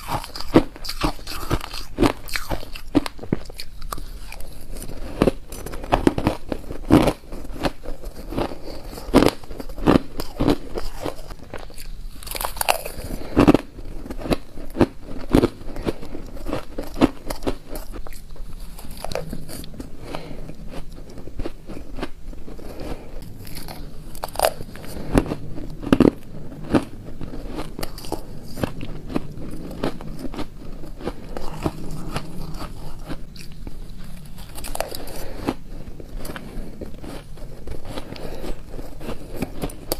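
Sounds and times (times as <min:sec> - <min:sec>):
chewing crunchy shaved ice: 0:00.0 - 0:39.9.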